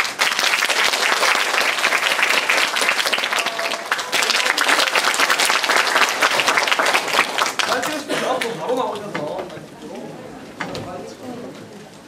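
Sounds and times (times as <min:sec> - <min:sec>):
audience applause: 0:00.0 - 0:09.5.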